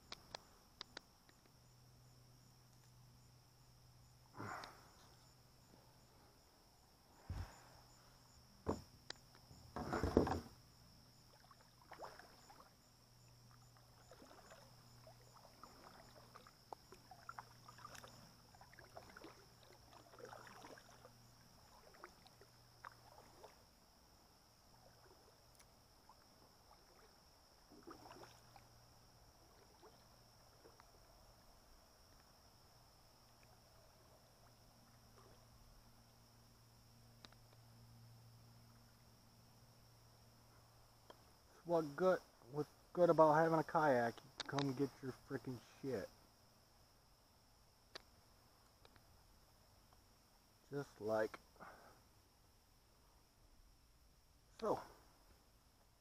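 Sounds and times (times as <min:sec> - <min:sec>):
paddle knocking against kayak: 0:08.6 - 0:08.9, 0:09.7 - 0:10.5
paddle splashes and drips: 0:09.7 - 0:32.5, 0:33.1 - 0:36.2.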